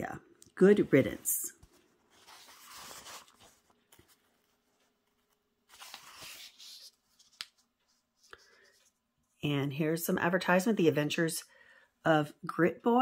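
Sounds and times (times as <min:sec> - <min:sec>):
paper pages rustling: 0:01.0 - 0:09.0.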